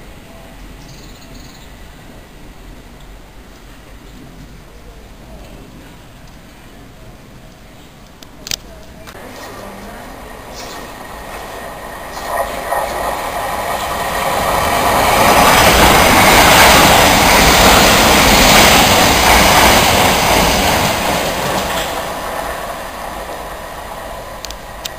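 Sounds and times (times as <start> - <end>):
train passing at speed: 8.8 - 24.9.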